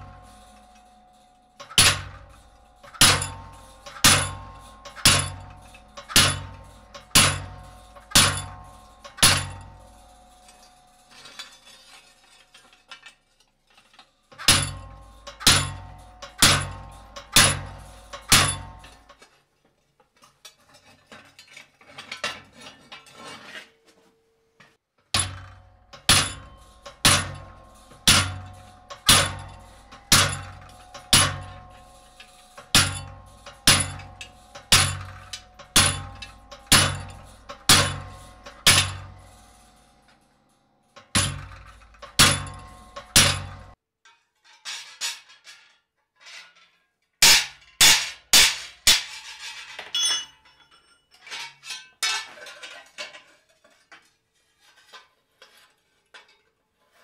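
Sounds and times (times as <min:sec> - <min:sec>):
steel plate ringing: 0:00.0 - 0:12.8, 0:14.3 - 0:19.2, 0:25.2 - 0:43.8, 0:50.0 - 0:51.1.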